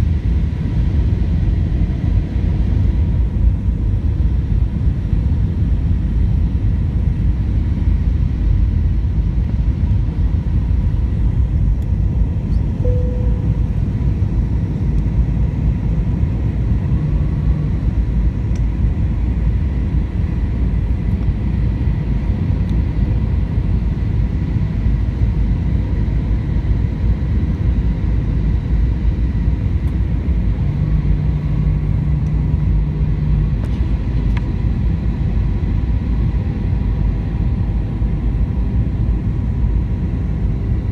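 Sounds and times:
airplane cabin engine rumble: 0:00.0 - 0:40.9
faint thin whine: 0:12.4 - 0:15.0.

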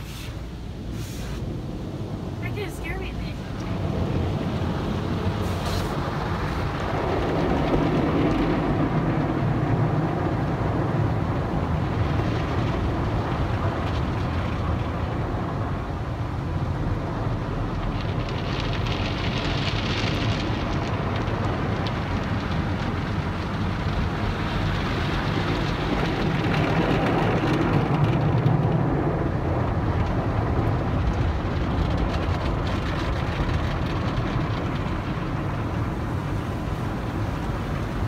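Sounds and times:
water spraying on glass: 0:03.8 - 0:06.9.

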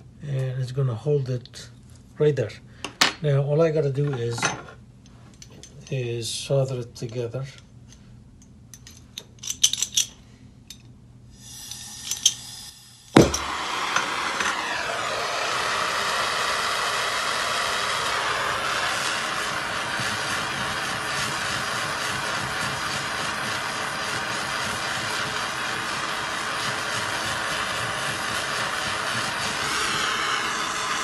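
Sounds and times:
torch flame hissing: 0:11.3 - 0:31.0
torch lighting pop: 0:13.1 - 0:14.6.

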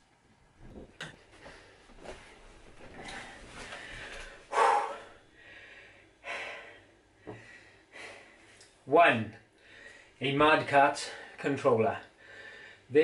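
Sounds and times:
man breathing and snorting: 0:01.2 - 0:08.7.

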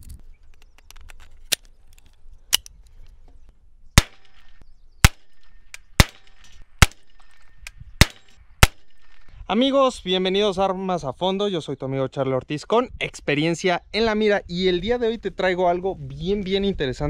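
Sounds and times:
pistol shots: 0:04.0 - 0:07.4, 0:08.0 - 0:09.3.

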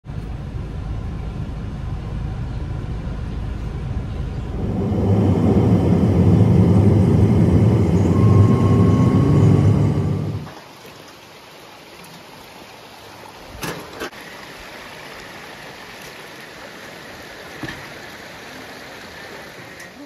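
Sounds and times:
car engine and tyre rumble: 0:00.0 - 0:10.5.

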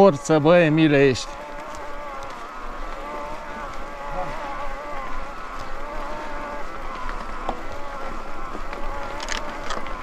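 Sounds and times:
electric bike motor whining: 0:00.0 - 0:10.0.

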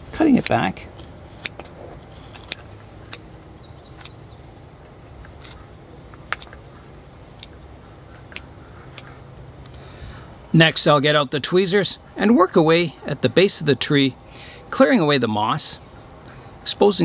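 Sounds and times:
scissors snipping moss: 0:00.3 - 0:03.3, 0:03.9 - 0:04.2, 0:06.2 - 0:06.6, 0:07.3 - 0:07.7, 0:08.3 - 0:09.1.

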